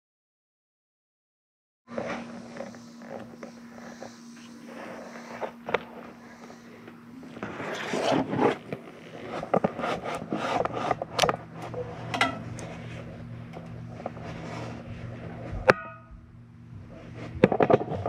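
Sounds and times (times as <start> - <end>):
steady low hum: 1.9 - 18.0
camera scraping against flue tiles: 7.3 - 14.8.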